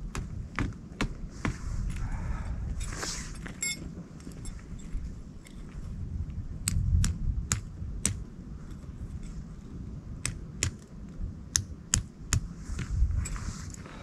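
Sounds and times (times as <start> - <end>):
footsteps on rocky trail: 0.0 - 6.0
wind rumble: 0.0 - 14.0
microphone handling noise: 12.5 - 14.0.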